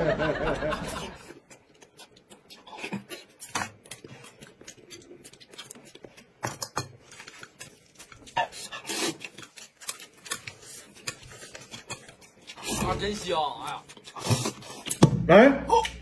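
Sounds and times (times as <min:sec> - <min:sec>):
chewing: 0:01.1 - 0:15.0
slurping noodles: 0:07.3 - 0:13.0, 0:13.9 - 0:15.0.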